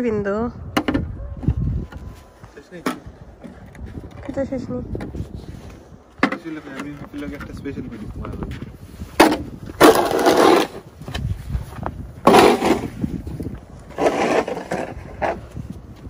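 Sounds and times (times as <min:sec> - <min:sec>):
snow shovel scraping snow: 0:09.8 - 0:10.9, 0:12.3 - 0:13.1, 0:13.9 - 0:15.5.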